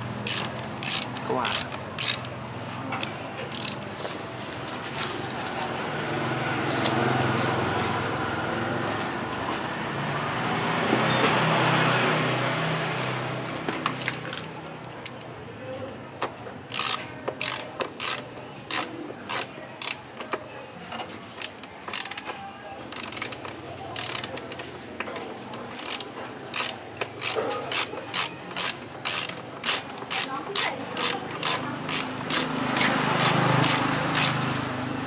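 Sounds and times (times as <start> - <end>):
ratchet driver clicking: 0.2 - 2.4, 3.0 - 3.8, 16.7 - 20.0, 21.4 - 22.3, 22.9 - 24.7, 25.4 - 34.4.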